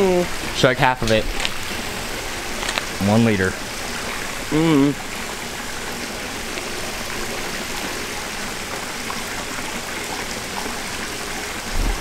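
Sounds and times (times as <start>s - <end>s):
rush of moving water: 0.0s - 12.0s.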